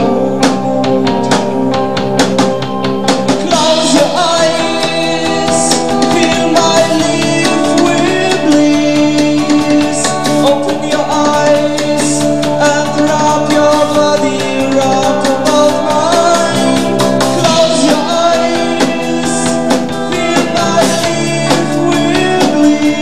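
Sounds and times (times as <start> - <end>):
bass: 0.0 - 23.0
drum kit beat: 0.0 - 23.0
electric guitar: 0.0 - 23.0
keyboards: 0.0 - 23.0
person singing: 0.0 - 23.0.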